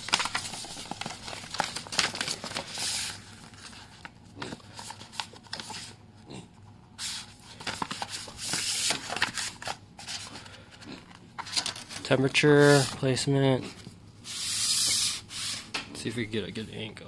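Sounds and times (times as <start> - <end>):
paper clicks: 0.0 - 3.1
paper pages rustling: 0.0 - 6.0, 7.0 - 10.6, 11.4 - 15.7.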